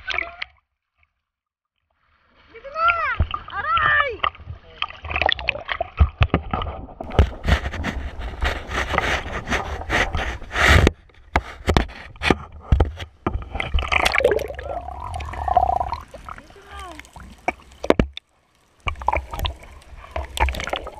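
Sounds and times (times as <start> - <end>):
sea water splashing: 13.1 - 20.9.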